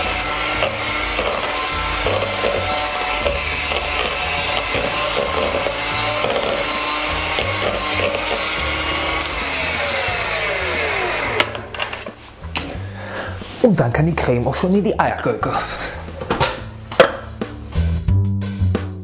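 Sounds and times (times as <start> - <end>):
electric hand mixer whisking: 0.0 - 12.1.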